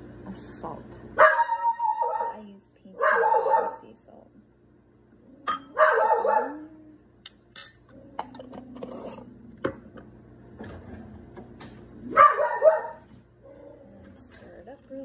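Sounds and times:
bark-like cry: 1.2 - 2.4, 3.0 - 3.8, 5.4 - 6.8, 12.1 - 13.7
spoon clinking against glass: 7.3 - 7.9.

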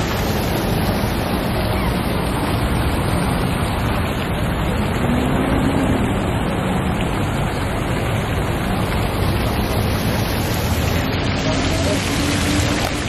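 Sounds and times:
fountain water splashing: 0.0 - 13.0
faint voices: 10.9 - 13.0.

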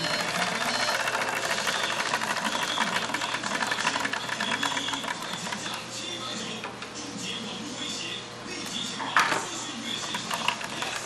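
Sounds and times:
sewing machine rattling: 0.0 - 5.8, 10.0 - 11.0.

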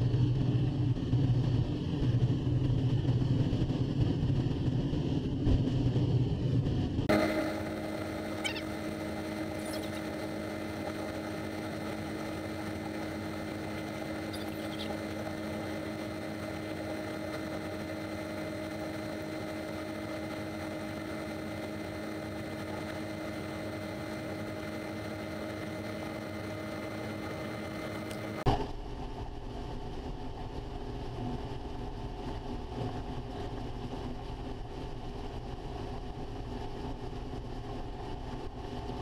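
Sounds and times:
combine harvester humming: 7.0 - 28.5.

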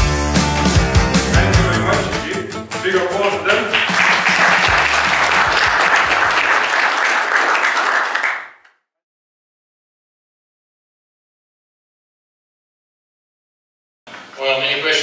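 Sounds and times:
audience applauding: 3.2 - 8.7.

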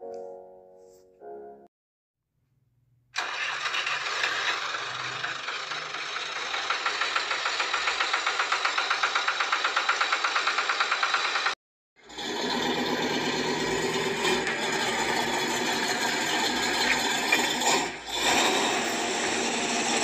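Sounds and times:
tractor engine chugging: 3.2 - 11.6, 12.6 - 18.1.

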